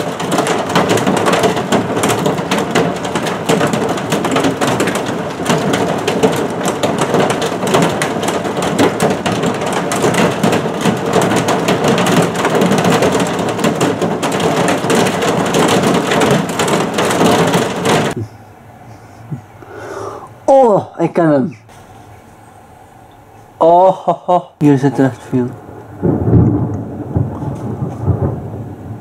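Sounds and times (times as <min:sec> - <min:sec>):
heavy rain downpour: 0:00.0 - 0:18.2, 0:23.6 - 0:29.0
raindrops pattering close by: 0:00.0 - 0:18.2, 0:24.6 - 0:29.0.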